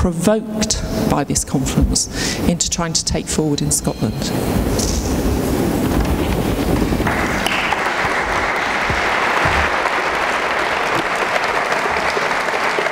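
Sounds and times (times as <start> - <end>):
audience applauding: 6.8 - 12.9.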